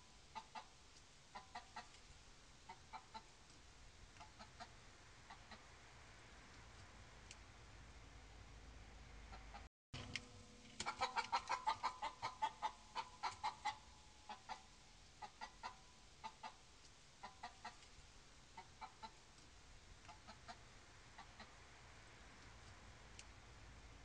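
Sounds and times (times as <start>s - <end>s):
hen clucking in alarm: 0.3s - 2.0s, 2.6s - 3.4s, 4.2s - 5.7s, 10.8s - 17.8s, 18.5s - 19.2s, 20.1s - 21.6s.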